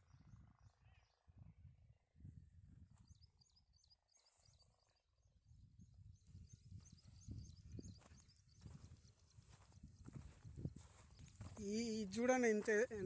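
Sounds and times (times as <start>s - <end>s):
wind rumbling on microphone: 0.0s - 3.5s, 5.3s - 13.0s
small bird chirping: 3.0s - 12.0s.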